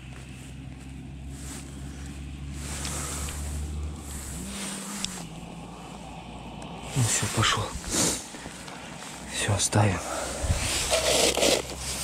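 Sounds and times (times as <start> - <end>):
low motor hum: 0.0 - 12.0
wind noise on microphone: 10.3 - 11.3.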